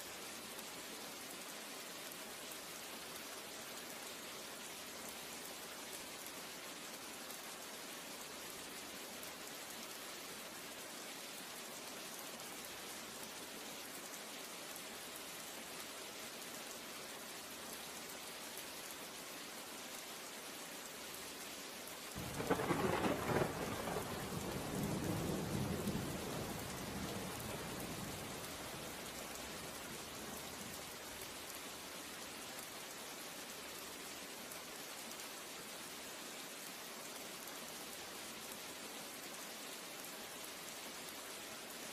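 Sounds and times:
steady rain: 0.0s - 41.9s
thunder clap rumbling: 22.2s - 28.7s.

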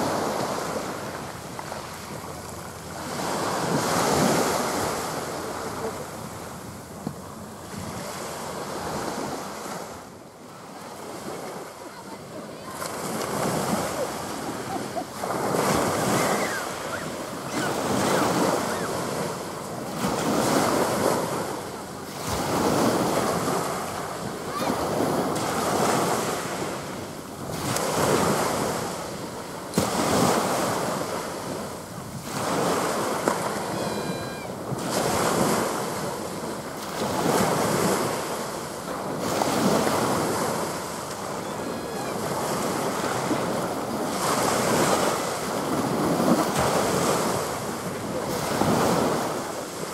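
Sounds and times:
wind buffeting microphone: 0.0s - 9.9s, 11.0s - 49.8s
small waves breaking on beach: 0.0s - 49.9s.

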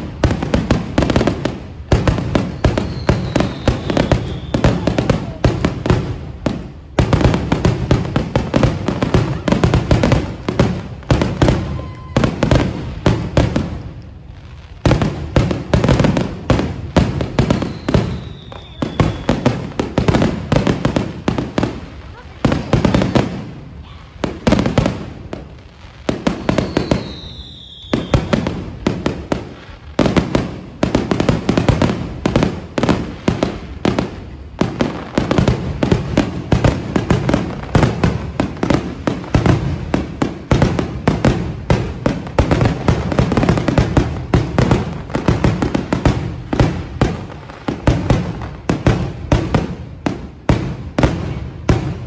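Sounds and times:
fireworks bangs and crackling: 0.0s - 52.0s
falling whistle: 2.6s - 4.8s, 17.6s - 19.3s, 26.6s - 28.3s.

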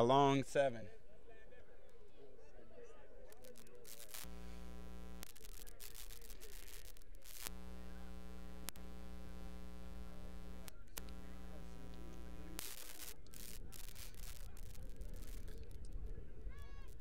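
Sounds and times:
electrical mains hum: 3.4s - 15.8s.

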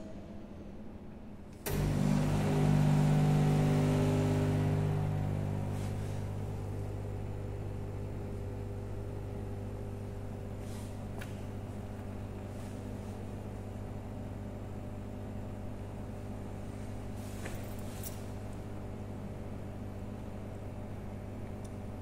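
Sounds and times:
vending machine motor humming: 1.5s - 16.2s.

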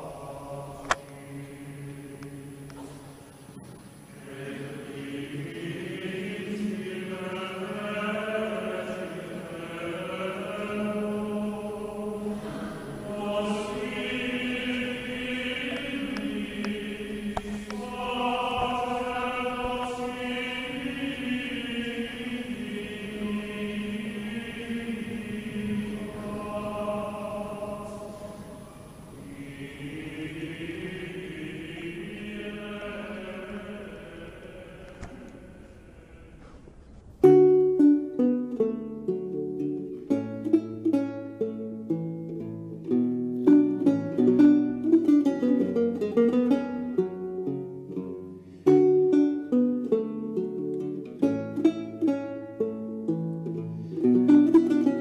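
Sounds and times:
choral chant: 0.0s - 3.4s, 4.1s - 37.0s.

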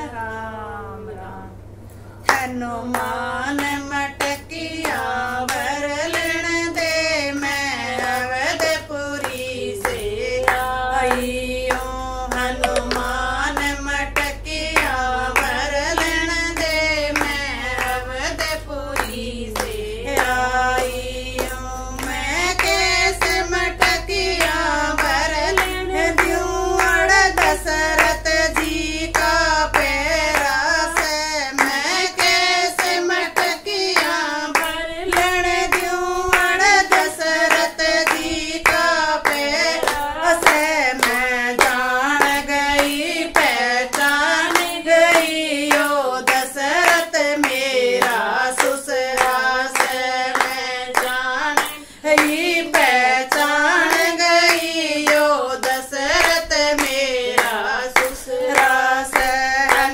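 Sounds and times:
women singing folk song: 2.2s - 59.9s
hand claps: 2.3s - 59.9s.

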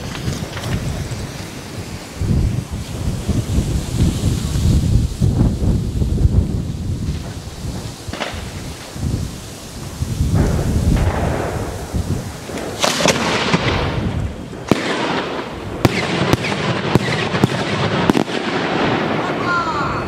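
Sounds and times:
firework cracking bangs: 0.0s - 20.0s
firework shell burst: 9.8s - 18.9s
firework boom: 9.8s - 19.4s.

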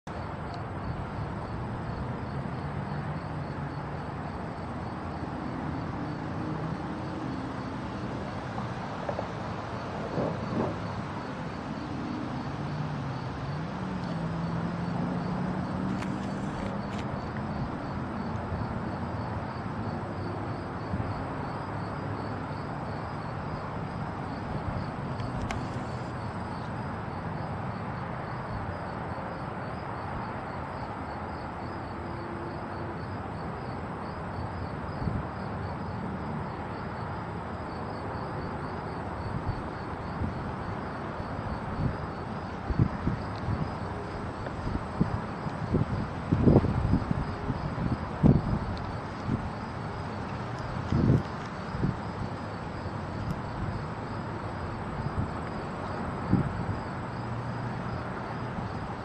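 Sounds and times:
insect chirping: 0.1s - 59.0s
distant freight train rumble: 8.4s - 12.2s.

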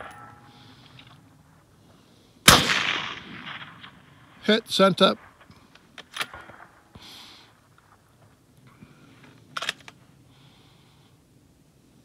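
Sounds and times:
rifle bolt sliding: 9.5s - 10.0s.

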